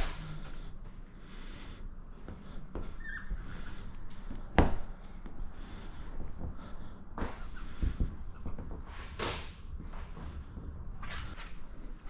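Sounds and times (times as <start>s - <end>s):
squeegee squeak: 3.0s - 3.8s.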